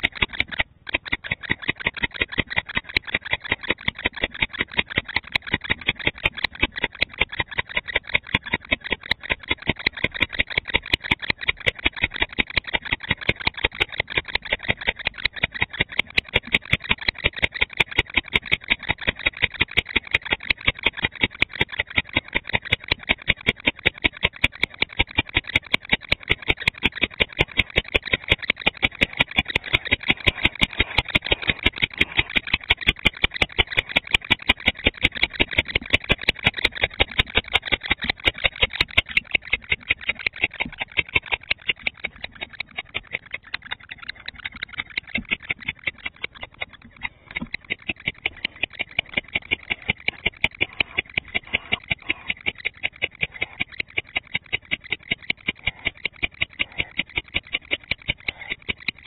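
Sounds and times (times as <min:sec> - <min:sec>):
barn owl calling: 0:41.9 - 0:54.0, 0:55.6 - 0:57.2.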